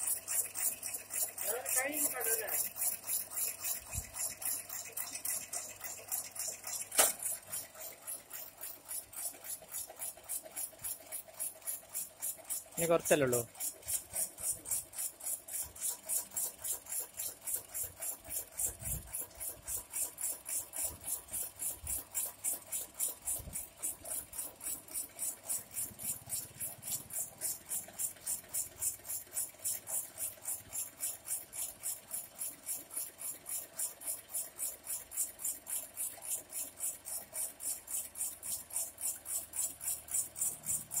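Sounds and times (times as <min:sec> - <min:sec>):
rhythmic pulsing hiss: 0:00.0 - 0:08.0
slicer machine humming: 0:00.0 - 0:32.8, 0:35.4 - 0:41.0.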